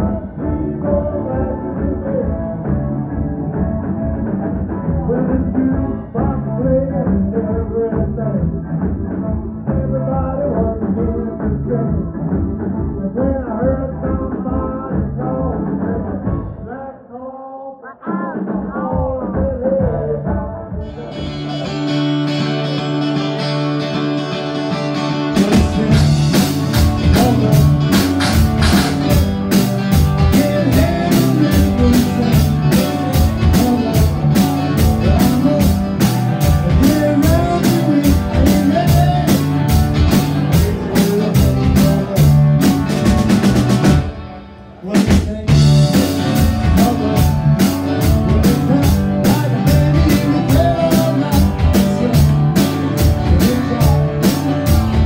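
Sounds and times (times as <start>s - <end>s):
live rock band playing: 0.0s - 16.7s, 20.8s - 55.0s
drum kit: 18.4s - 55.0s.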